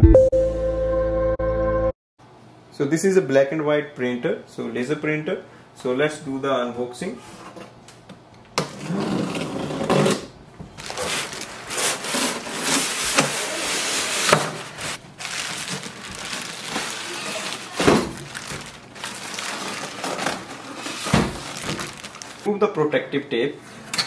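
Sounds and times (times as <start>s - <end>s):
cardboard scraping and rustling: 8.7s - 22.5s.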